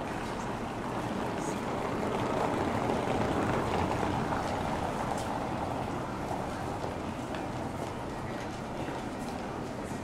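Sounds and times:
street hubbub: 0.0 - 10.0.

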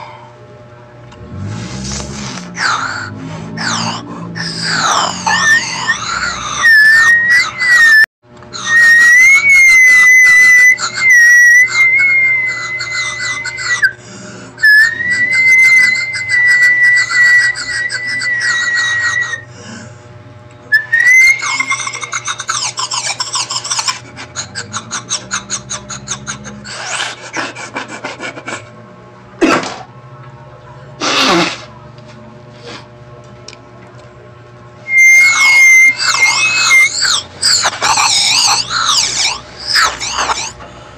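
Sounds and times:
high steady whistling tone: 4.6 - 14.0, 14.6 - 19.5, 20.7 - 21.7, 34.8 - 37.7.

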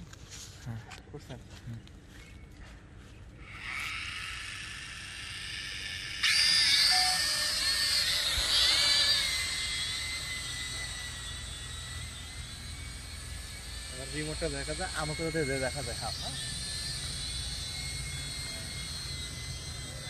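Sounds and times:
quadcopter motors whining: 0.0 - 20.0.

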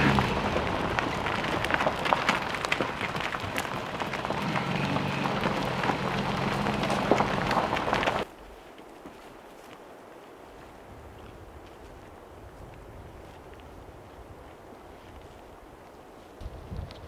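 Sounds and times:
low engine hum: 0.0 - 8.2
tyres crunching on gravel: 0.0 - 9.8.

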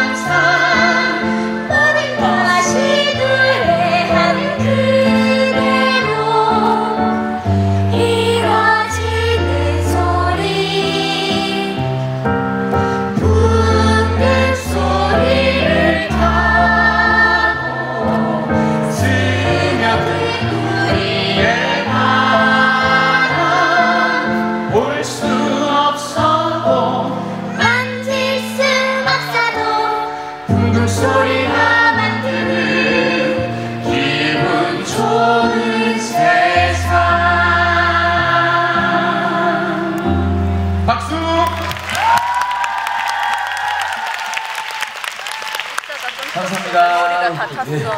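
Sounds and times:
woman singing into a microphone: 0.0 - 7.2
chorus of voices: 0.0 - 45.3
recorded accompaniment with bass: 7.6 - 28.8.

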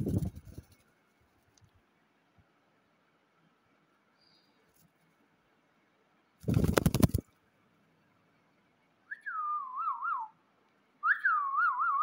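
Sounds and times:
loud rattling noise: 6.4 - 7.2
whistled phrases: 9.1 - 10.4, 11.0 - 12.0.

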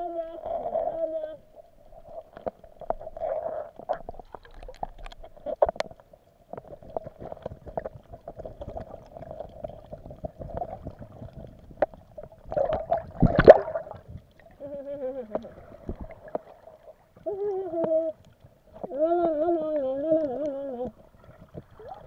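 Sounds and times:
underwater clicks and taps: 3.9 - 14.3.

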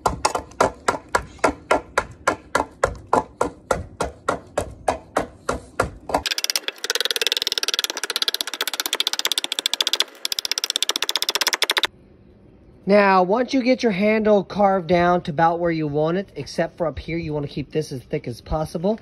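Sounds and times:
hatchet chopping wood: 0.0 - 11.9.

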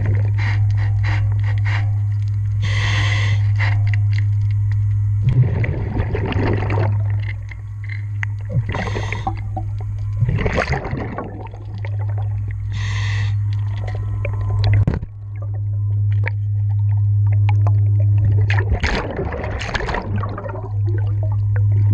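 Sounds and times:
inhaled air hissing: 0.0 - 4.2, 8.6 - 9.6, 12.6 - 13.6
steady low hum: 0.0 - 21.9
exhaled bubbles rushing: 5.2 - 7.7, 8.3 - 12.8, 13.6 - 21.9.

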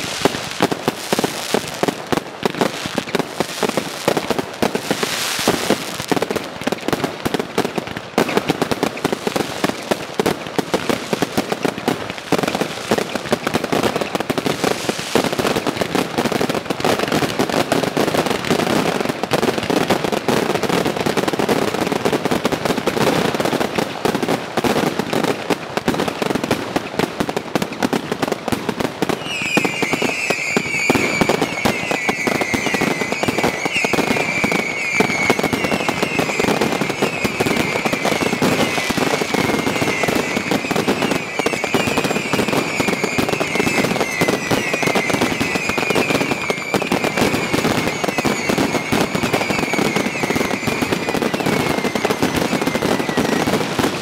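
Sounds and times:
firework bangs and crackle: 0.0 - 54.0
high firework whistle: 29.0 - 54.0.

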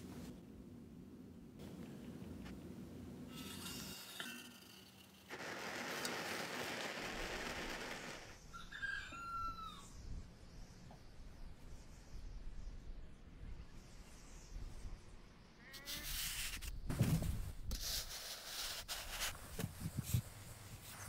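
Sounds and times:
blowtorch flame hissing: 5.3 - 8.4.

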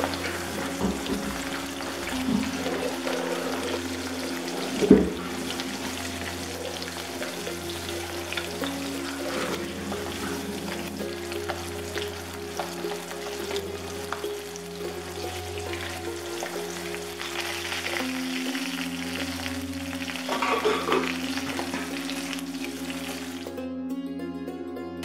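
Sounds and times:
wooden spatula scraping a wok: 0.0 - 18.1
fish sizzling in hot oil: 0.0 - 23.5.

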